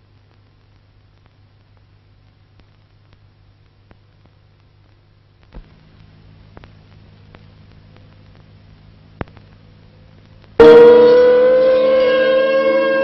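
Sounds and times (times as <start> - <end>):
faint steady hum: 0.0 - 13.0
film crackle and clicks: 0.0 - 13.0
loud tone with overtones: 10.5 - 13.0.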